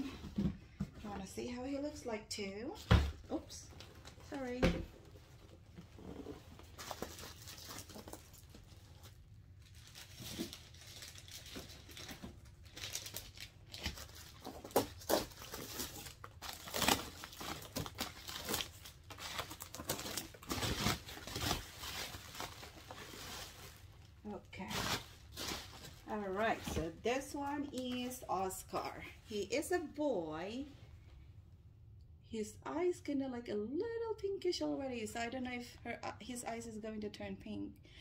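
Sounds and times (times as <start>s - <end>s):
packaging crinkling and tearing: 6.6s - 26.8s.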